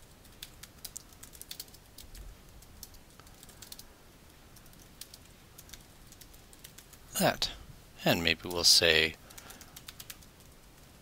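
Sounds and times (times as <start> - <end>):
typing on a keyboard: 0.0 - 3.9, 4.6 - 7.0, 9.2 - 11.0.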